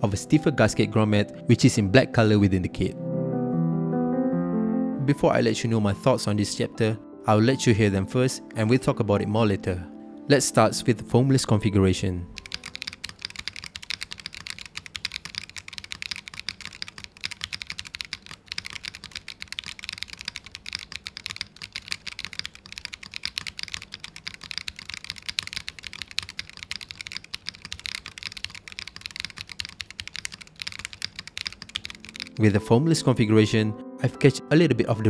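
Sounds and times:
fast typing on mechanical keyboard: 0:12.3 - 0:32.6.

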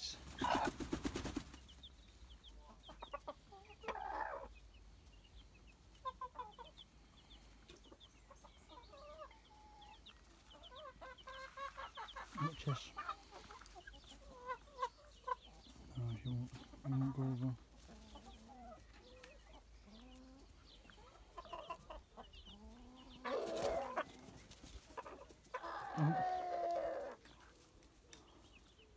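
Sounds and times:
chicks peeping: 0:00.0 - 0:28.9
wings flapping: 0:00.2 - 0:01.7, 0:23.4 - 0:24.9
hen clucking softly: 0:02.4 - 0:04.7, 0:05.3 - 0:24.2, 0:24.8 - 0:27.5.

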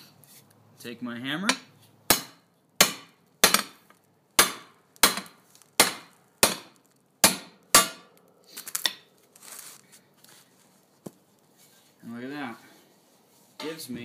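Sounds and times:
hammer striking steel: 0:01.5 - 0:03.8, 0:04.4 - 0:08.1.

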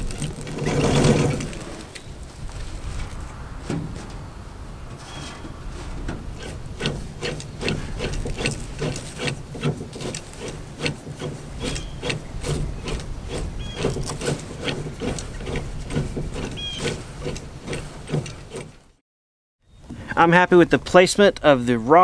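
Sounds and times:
plastic rubbing: 0:00.0 - 0:19.0
short squeaks: 0:04.9 - 0:19.0.

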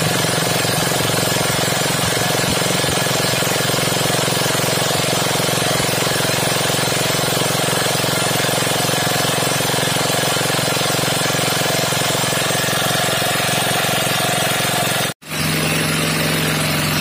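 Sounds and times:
single-cylinder engine running: 0:00.0 - 0:17.0.

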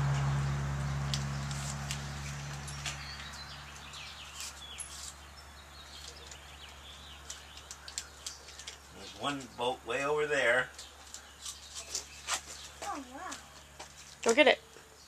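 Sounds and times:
birds chirping and twittering: 0:00.0 - 0:15.0
vehicle engine hum: 0:00.0 - 0:15.0.

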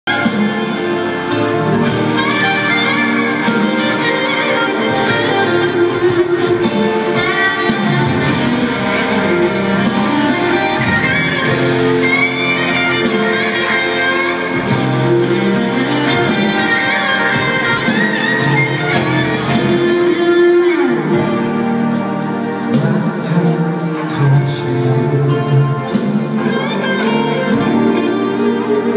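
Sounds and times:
drums: 0:00.0 - 0:28.9
electric guitar: 0:00.1 - 0:28.9
rock band playing live: 0:00.1 - 0:28.9.

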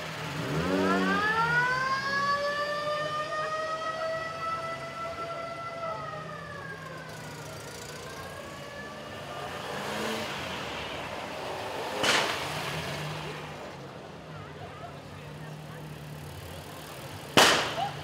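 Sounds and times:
old cars driving past slowly: 0:00.0 - 0:18.0
siren wailing: 0:00.4 - 0:09.6
sharp crack: 0:11.9 - 0:12.8, 0:17.3 - 0:18.0.

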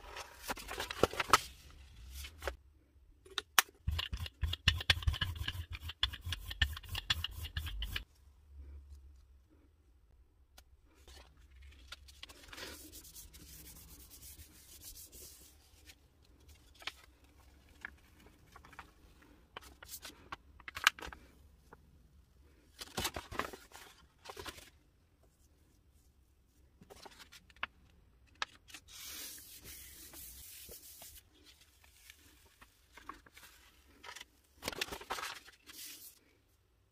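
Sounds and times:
paper crinkling and rustling: 0:00.0 - 0:02.6, 0:15.8 - 0:21.3, 0:22.8 - 0:24.8, 0:26.8 - 0:36.3.

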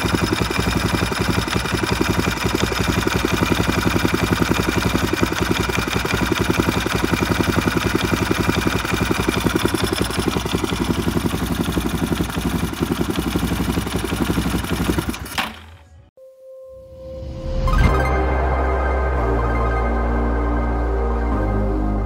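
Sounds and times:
motorcycle engine idling: 0:00.0 - 0:16.0.

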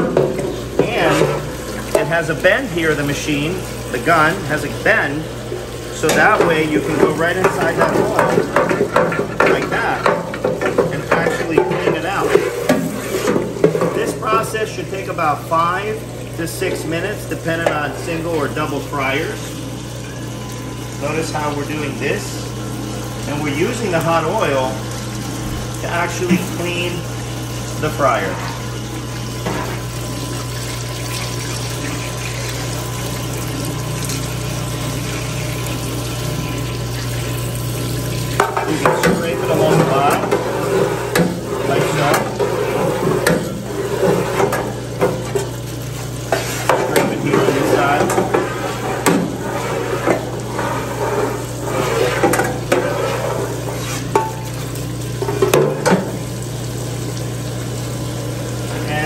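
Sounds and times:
low pump hum: 0:00.0 - 0:59.0
oil splashing: 0:24.4 - 0:58.7.

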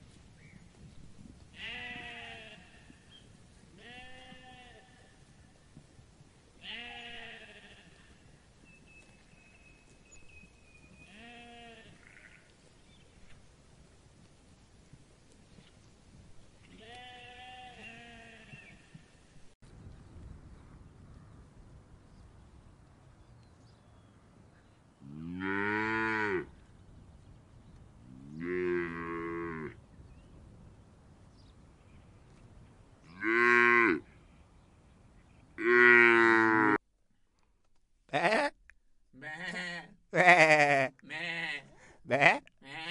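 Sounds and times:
sheep bleating: 0:01.6 - 0:02.8, 0:06.6 - 0:08.1, 0:11.1 - 0:12.5, 0:16.8 - 0:18.7, 0:38.1 - 0:38.6, 0:39.2 - 0:42.9.

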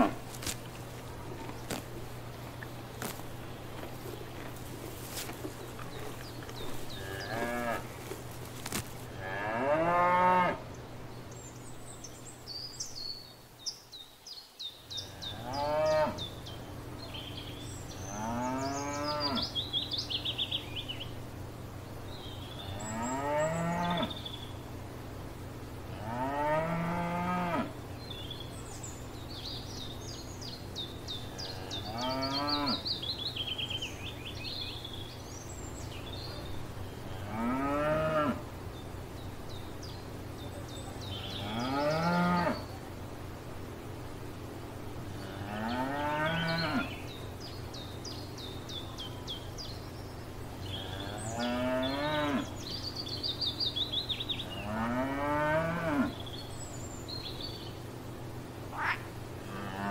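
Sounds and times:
songbirds chirping: 0:00.0 - 0:59.9
cows mooing: 0:06.8 - 0:07.9, 0:09.2 - 0:10.6, 0:15.3 - 0:16.2, 0:31.4 - 0:32.8, 0:37.2 - 0:38.4, 0:41.3 - 0:42.6, 0:50.7 - 0:52.5, 0:54.6 - 0:56.2, 0:59.5 - 0:59.9.

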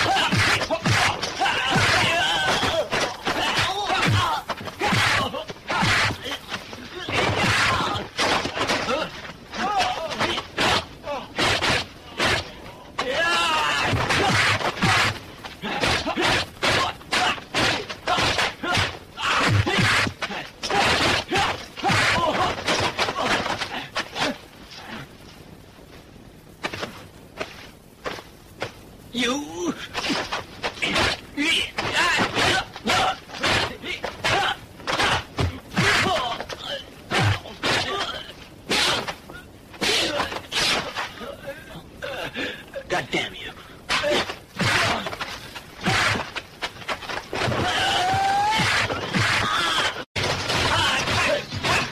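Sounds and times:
punch and kick impacts: 0:00.0 - 0:06.3, 0:07.1 - 0:13.1, 0:13.7 - 0:23.5, 0:43.9 - 0:45.2
fighters shouting and grunting: 0:00.0 - 0:25.2, 0:29.2 - 0:51.9.

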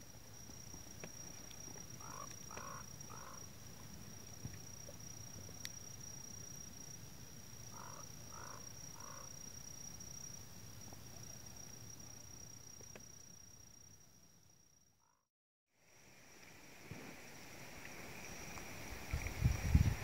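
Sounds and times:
bird calling: 0:02.0 - 0:03.4, 0:07.8 - 0:09.3.

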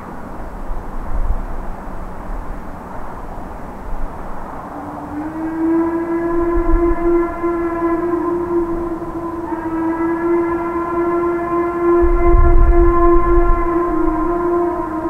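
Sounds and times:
steam locomotive whistle blast: 0:04.7 - 0:15.0.

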